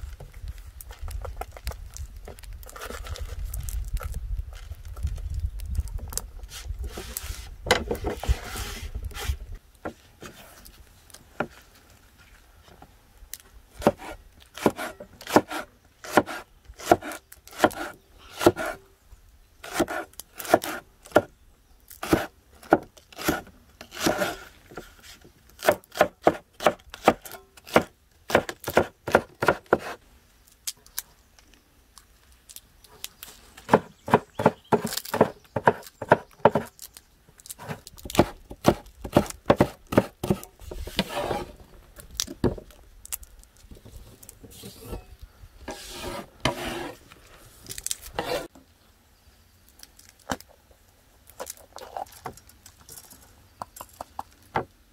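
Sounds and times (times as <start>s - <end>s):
cleaver chopping on wooden board: 13.8s - 18.8s, 25.6s - 30.0s, 33.7s - 36.7s, 37.6s - 40.5s.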